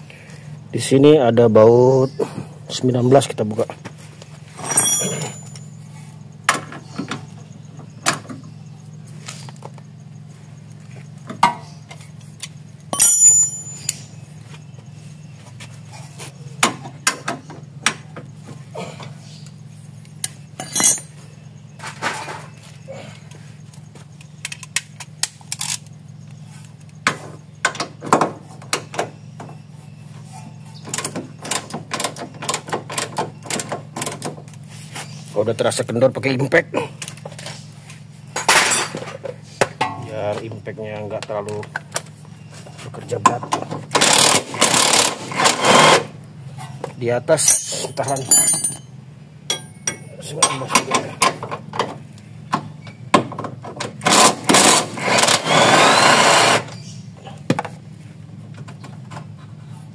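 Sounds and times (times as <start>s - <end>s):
metal hand tools clinking: 4.6s - 5.8s, 12.9s - 14.0s, 20.6s - 21.2s, 47.4s - 51.0s
low steady hum: 46.1s - 53.9s.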